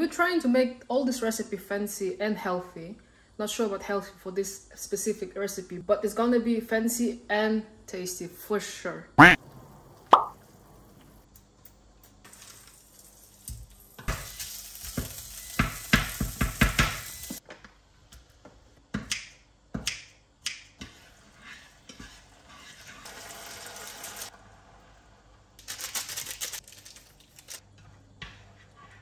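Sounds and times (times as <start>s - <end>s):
beef sizzling in a saucepan: 12.2s - 17.4s, 20.8s - 24.5s
utensils scraping in a pan: 20.8s - 24.3s, 27.8s - 29.0s.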